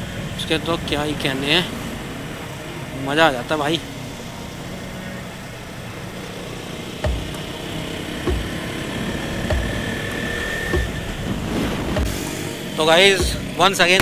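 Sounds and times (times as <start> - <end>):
thin steady whine: 0.0 - 14.0
motorcycle engine running: 5.8 - 14.0
short low thumps: 7.1 - 7.5, 8.3 - 8.7, 9.4 - 10.1, 10.7 - 12.6, 13.2 - 13.6.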